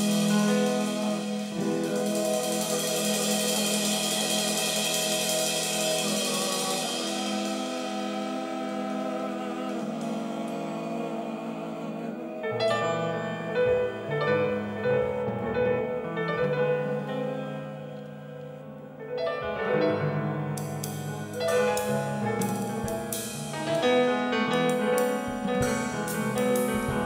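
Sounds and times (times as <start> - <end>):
piano notes: 0.0 - 27.0
low bass notes: 19.8 - 27.0.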